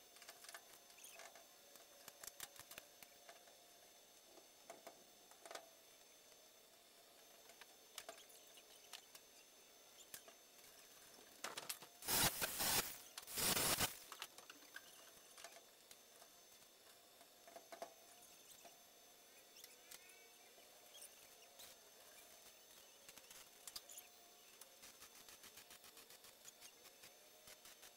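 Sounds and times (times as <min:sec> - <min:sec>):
arc welding crackling: 0:11.7 - 0:14.4.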